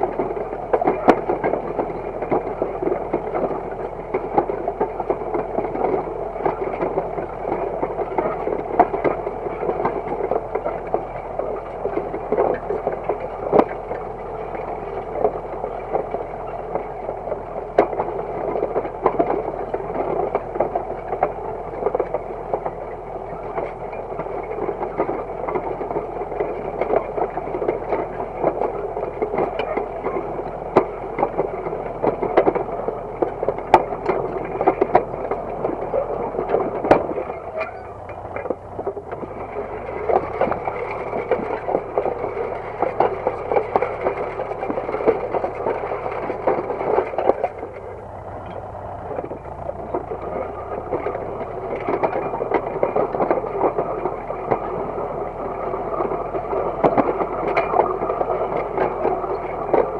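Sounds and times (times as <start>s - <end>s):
disc harrow rattling and scraping: 0.0s - 59.9s
tractor diesel engine running: 0.0s - 59.9s.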